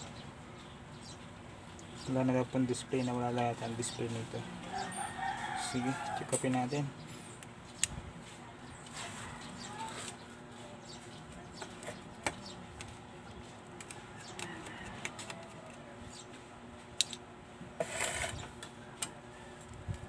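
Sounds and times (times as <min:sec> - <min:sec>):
brief scrape: 0:17.8 - 0:18.5.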